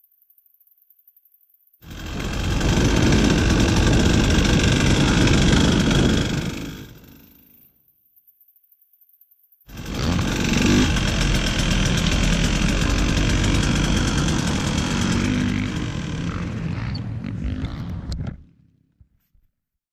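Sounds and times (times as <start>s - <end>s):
dirt bike engine idling: 1.8s - 7.4s, 9.7s - 18.1s.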